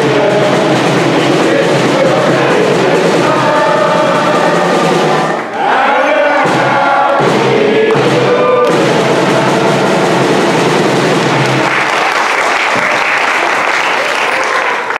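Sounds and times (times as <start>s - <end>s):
group singing: 0.0s - 11.6s
snare drums: 0.0s - 13.2s
loud applause: 1.4s - 14.9s.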